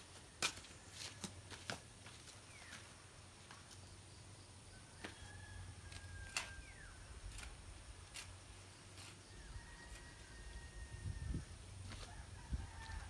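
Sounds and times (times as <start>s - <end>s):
distant rooster crowing: 4.7s - 7.0s, 9.2s - 13.0s.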